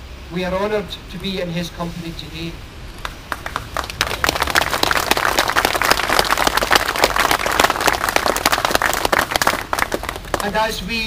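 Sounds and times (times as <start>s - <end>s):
crowd applauding: 3.0s - 10.6s.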